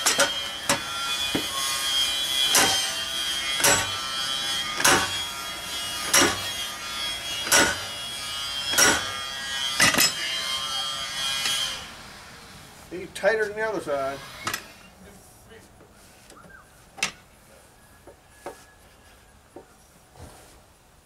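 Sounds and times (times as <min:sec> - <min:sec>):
steel bar striking metal rim: 0:00.0 - 0:01.8, 0:02.4 - 0:06.8, 0:07.4 - 0:08.0, 0:08.6 - 0:10.3
high metallic ringing: 0:00.0 - 0:11.9.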